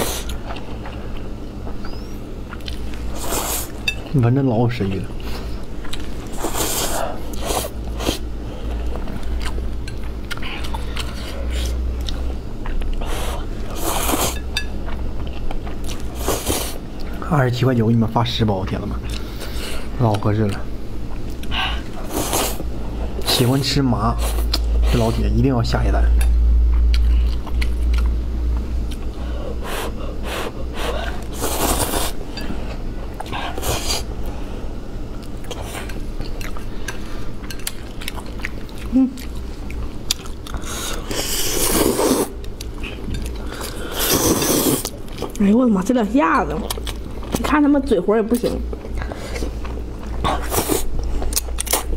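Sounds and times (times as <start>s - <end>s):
low steady hum: 0.0s - 51.9s
wet chewing and smacking: 0.2s - 3.1s, 4.8s - 6.3s, 8.8s - 13.1s, 26.6s - 29.2s, 35.1s - 41.0s, 46.5s - 47.5s, 48.3s - 51.9s
slurping and chewing noodles: 5.2s - 8.2s, 10.2s - 16.8s, 28.9s - 32.2s, 35.2s - 45.4s, 48.7s - 51.9s
person slurping noodles: 29.7s - 32.2s, 40.7s - 42.4s, 43.6s - 44.9s.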